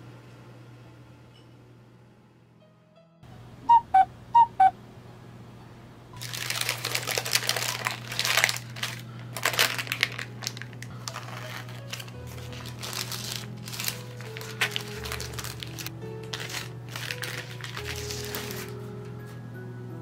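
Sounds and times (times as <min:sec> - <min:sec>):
short beeps: 0:03.7 - 0:04.7
baking paper crinkling: 0:06.2 - 0:19.2.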